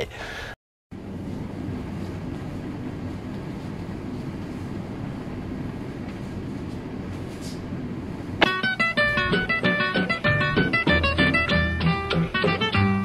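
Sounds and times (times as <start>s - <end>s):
low rumbling room tone: 0.0s - 13.0s.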